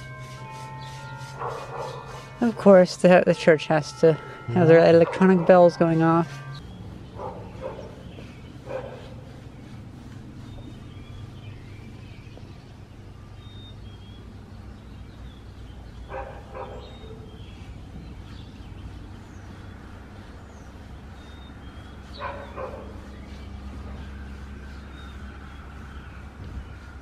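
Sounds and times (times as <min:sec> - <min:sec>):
dog barking: 0:01.4 - 0:02.0, 0:07.2 - 0:08.0, 0:08.7 - 0:09.1, 0:16.1 - 0:17.2, 0:22.2 - 0:22.9.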